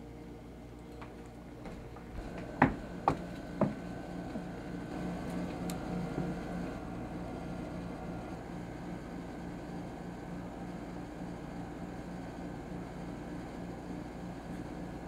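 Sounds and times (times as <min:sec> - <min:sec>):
low steady hum: 0:00.0 - 0:15.0
sharp knocks: 0:02.2 - 0:03.8.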